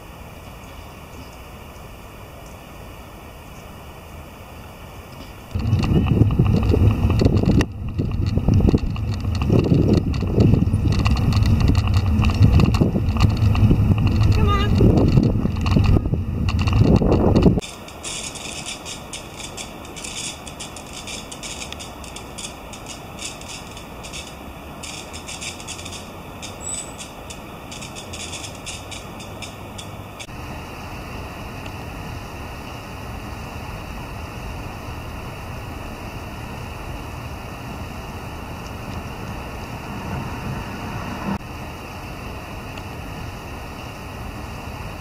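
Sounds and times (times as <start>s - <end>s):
low traffic-like hum: 0.0s - 45.0s
soft high-pitched crackles: 5.2s - 30.3s
wind rumble on microphone: 5.2s - 45.0s.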